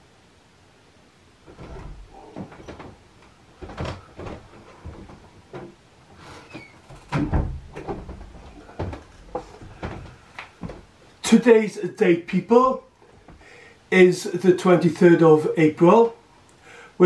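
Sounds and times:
knocks and thumps: 0:01.4 - 0:05.8, 0:06.5 - 0:10.9
person walking and moving about: 0:01.4 - 0:11.2.

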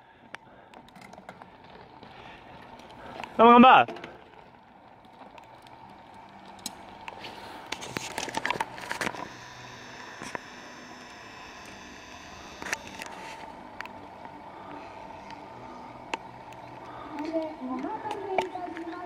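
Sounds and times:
bike drivetrains rattling: 0:00.0 - 0:19.0
bike tyres crunching: 0:00.1 - 0:11.9.

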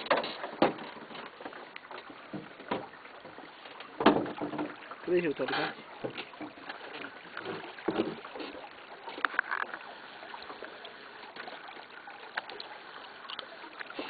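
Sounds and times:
gentle water lapping: 0:00.0 - 0:14.0
fishing tackle clicks and knocks: 0:09.2 - 0:09.8.

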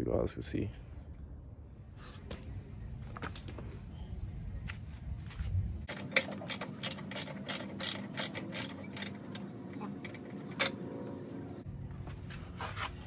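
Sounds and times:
ratchet wrench clicking: 0:05.9 - 0:09.4.

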